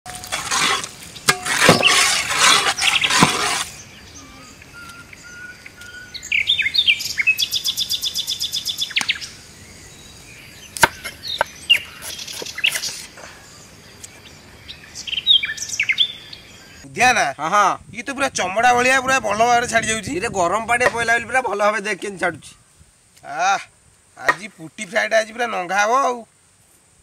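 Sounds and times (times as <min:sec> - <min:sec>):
bird chirps: 0:01.2 - 0:16.9
bird trilling: 0:01.8 - 0:09.3.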